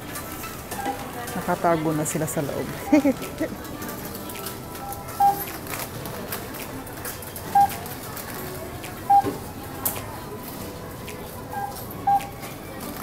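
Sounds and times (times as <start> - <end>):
barcode scanner beeps: 4.8 - 5.5, 7.5 - 7.8, 9.1 - 9.3, 11.5 - 12.4.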